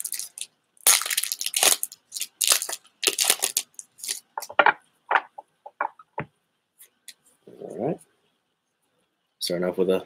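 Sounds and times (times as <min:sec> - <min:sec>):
foil pack tearing and crinkling: 0:00.0 - 0:04.2.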